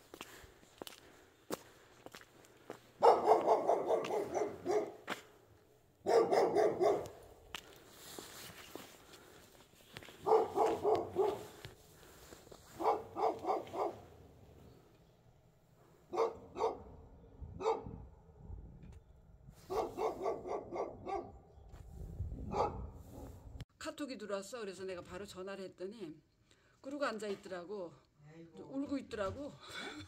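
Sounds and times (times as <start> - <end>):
dog barking: 3.0 - 5.1, 6.0 - 7.3, 10.2 - 11.6, 12.7 - 14.2, 16.1 - 17.0, 17.6 - 18.0, 19.6 - 21.5, 22.5 - 23.4.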